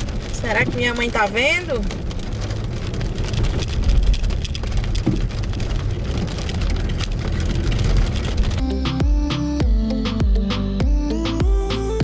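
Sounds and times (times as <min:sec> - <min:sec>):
hailstones ticking on windshield: 0:00.0 - 0:08.6
car driving rumble: 0:00.0 - 0:12.0
music: 0:08.6 - 0:12.0.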